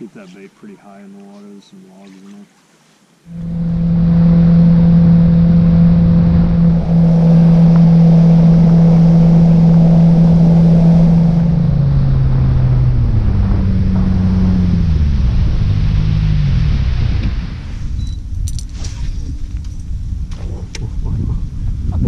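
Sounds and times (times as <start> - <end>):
water and wind rushing: 2.2 - 22.0
outboard motor running: 3.3 - 17.3.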